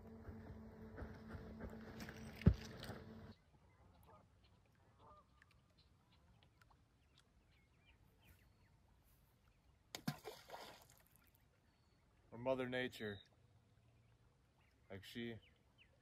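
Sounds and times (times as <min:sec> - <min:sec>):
faint geese honking: 0:00.0 - 0:06.2
splash in lake: 0:10.0 - 0:11.4.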